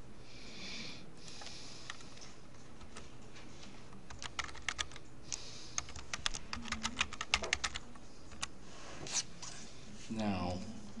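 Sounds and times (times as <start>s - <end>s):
keyboard typing: 4.1s - 5.1s, 5.8s - 8.5s.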